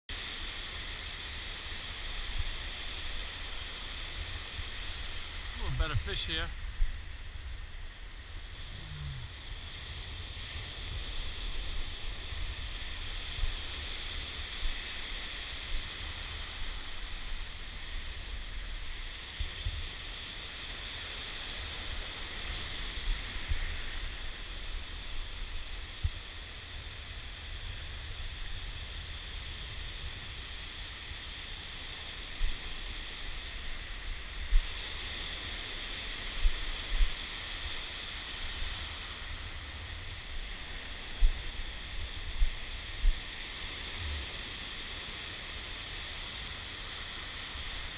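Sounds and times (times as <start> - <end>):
ocean surf washing: 0.1 - 47.9
wind buffeting microphone: 36.0 - 44.8.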